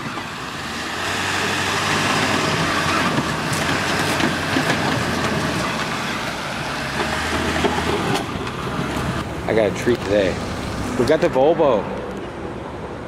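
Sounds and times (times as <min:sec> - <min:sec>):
truck engine under load: 0:00.0 - 0:12.3
knocks and scrapes: 0:01.5 - 0:06.2, 0:06.8 - 0:09.2.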